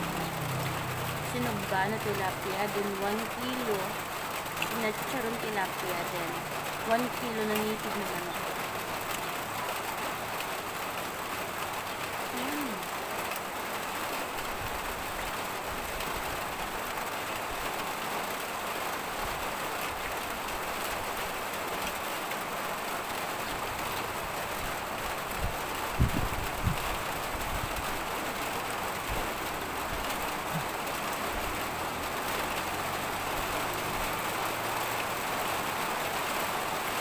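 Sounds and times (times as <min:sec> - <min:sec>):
steady rain: 0:00.0 - 0:37.0.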